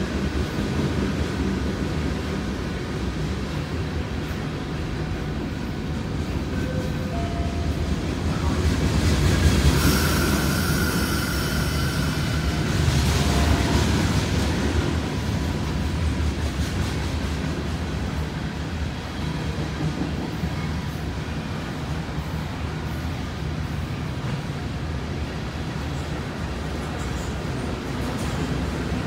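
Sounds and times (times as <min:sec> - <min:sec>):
train wheels rumbling on rails: 0:00.0 - 0:29.0
high wheel squeal: 0:09.7 - 0:12.7.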